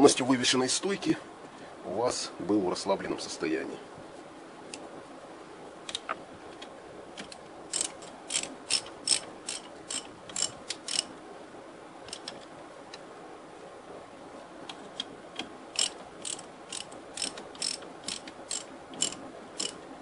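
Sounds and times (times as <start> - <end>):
ratchet wrench clicking: 7.7 - 11.1, 15.8 - 19.8.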